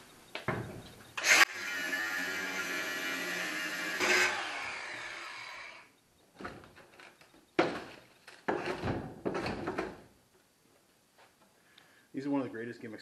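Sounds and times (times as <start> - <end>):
power tool disc winding down: 1.2 - 5.9.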